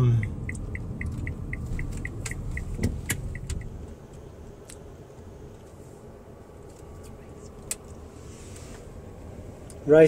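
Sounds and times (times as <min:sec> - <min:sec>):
sharp clicks: 0:00.0 - 0:03.8
car road and engine rumble: 0:00.0 - 0:10.0.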